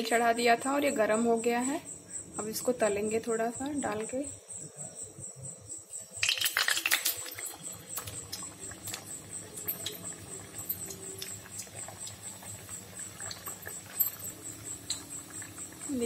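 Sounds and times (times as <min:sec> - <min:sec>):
pastry deep-frying in oil: 0:06.1 - 0:16.0.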